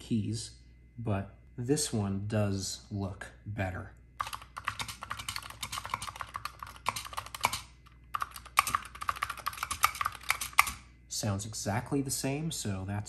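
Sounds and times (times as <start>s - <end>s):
keyboard keys clicking: 4.2s - 10.8s.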